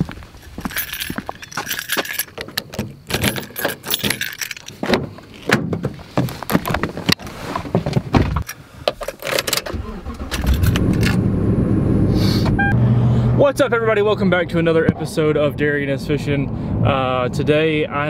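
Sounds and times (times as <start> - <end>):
keys jangling: 0.4 - 4.9, 10.4 - 11.2
person climbing into seat: 0.6 - 9.2.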